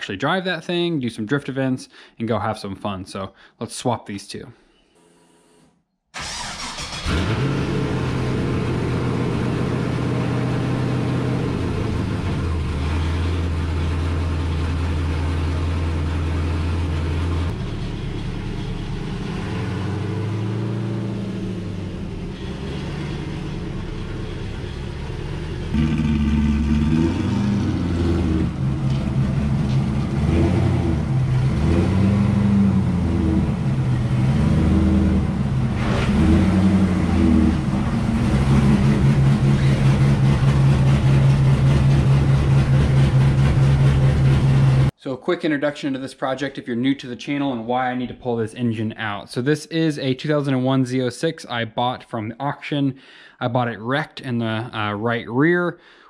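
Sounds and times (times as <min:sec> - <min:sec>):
louder car engine revving: 0:06.2 - 0:14.1, 0:16.4 - 0:44.9
car engine idling and revving: 0:06.2 - 0:44.9
car engine starting: 0:06.2 - 0:45.0.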